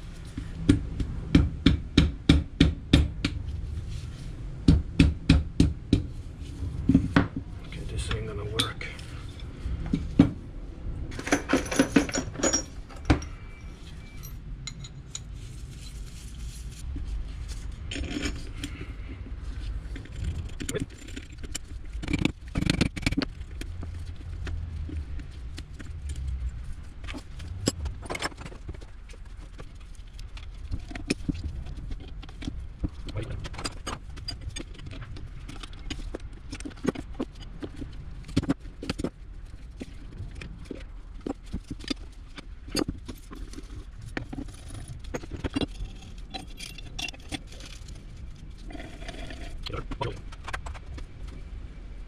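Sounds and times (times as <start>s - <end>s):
metal tools clinking and scraping: 11.1s - 16.2s, 44.4s - 47.9s.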